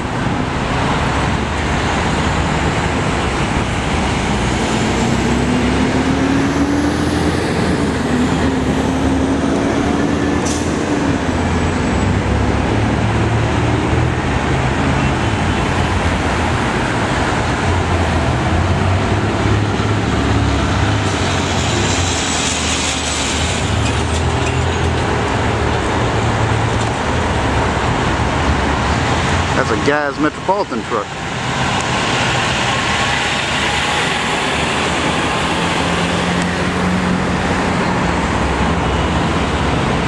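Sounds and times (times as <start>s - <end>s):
heavy road traffic rumble: 0.0s - 40.0s
hiss: 21.6s - 23.8s.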